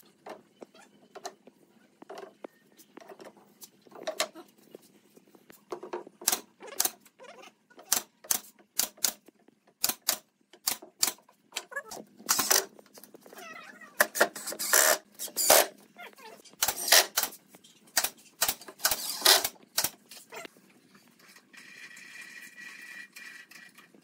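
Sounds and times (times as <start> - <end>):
nail gun firing: 9.8 - 11.2, 12.3 - 12.7, 14.1 - 15.7, 16.6 - 17.4, 18.0 - 20.0.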